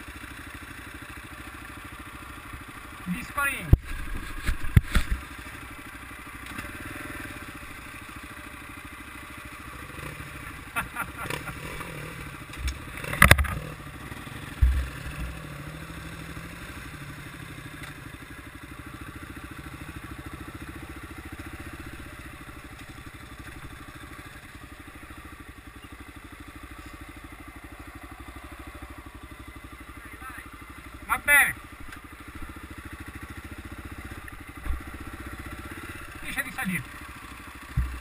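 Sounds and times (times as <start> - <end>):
motorcycle engine running at low revs: 0.0 - 38.0
dull thud: 14.5 - 15.3, 37.7 - 38.0.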